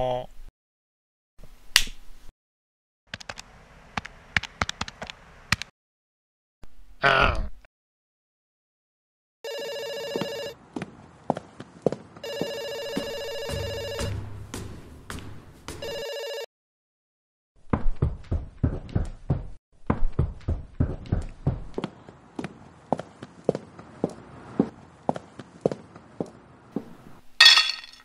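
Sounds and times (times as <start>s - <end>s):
telephone ringing: 9.4s - 10.6s, 12.2s - 14.2s, 15.8s - 16.5s
quick footsteps on stairs: 10.8s - 16.0s, 17.7s - 26.3s.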